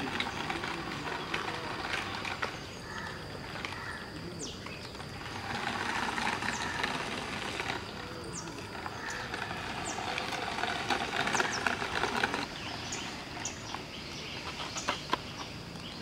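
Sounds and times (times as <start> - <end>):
small electric motor whirring: 5.1 - 13.7.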